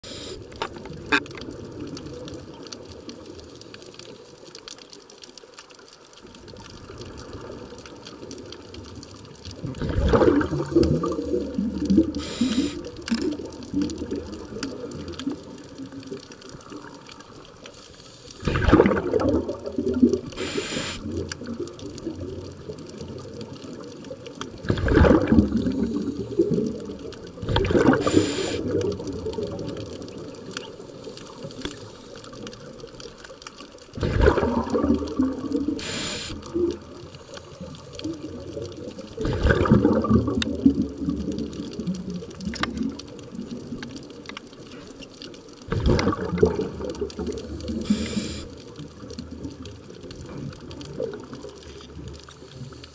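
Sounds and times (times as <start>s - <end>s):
scuba regulator hiss: 0.0s - 0.5s, 12.2s - 12.9s, 20.4s - 21.1s, 27.9s - 28.7s, 35.8s - 36.5s, 47.8s - 48.6s
underwater exhaled bubbles: 0.0s - 52.9s.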